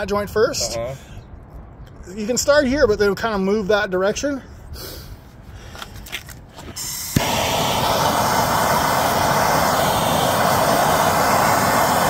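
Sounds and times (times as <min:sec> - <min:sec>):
torch igniting with a pop: 0:06.6 - 0:12.0
gas hissing: 0:06.7 - 0:12.0
torch flame hissing: 0:06.7 - 0:12.0.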